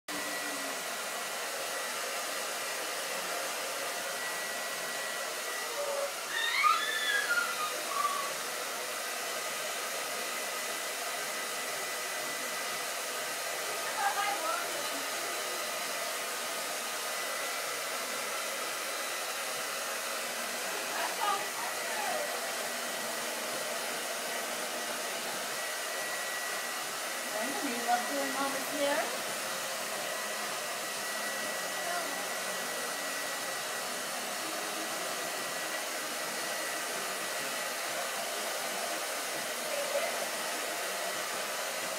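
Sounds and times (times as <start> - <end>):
steady whirring blower: 0.1 - 41.9
toddler squealing: 6.2 - 8.4.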